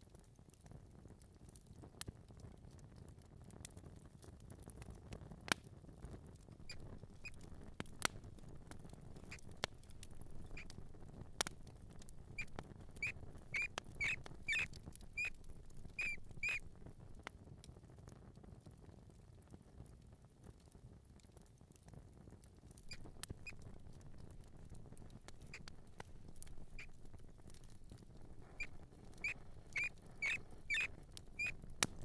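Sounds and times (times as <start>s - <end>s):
small clicks and scratches: 3.6s - 18.2s, 19.9s - 32.0s
mouse squeaks: 6.6s - 7.5s, 9.2s - 10.9s, 11.9s - 16.7s, 22.8s - 23.8s, 26.4s - 27.8s, 28.4s - 32.0s.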